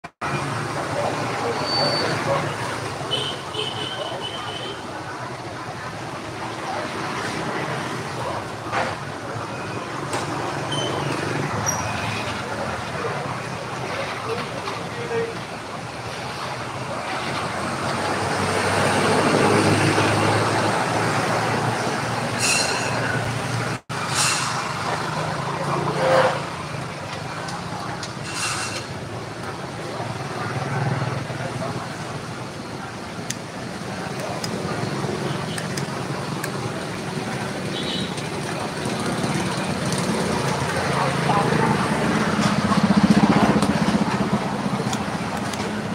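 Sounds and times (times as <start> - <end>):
road traffic hum: 0.0 - 45.9
motorbikes passing: 0.2 - 45.9
truck engine passing: 16.4 - 27.9.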